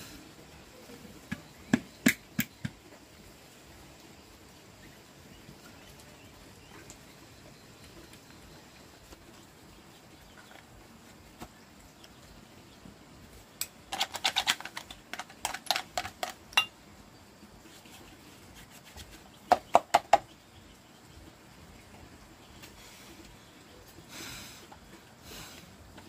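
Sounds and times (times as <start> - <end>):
hard objects clicking and tapping: 13.6 - 16.8, 19.5 - 20.3.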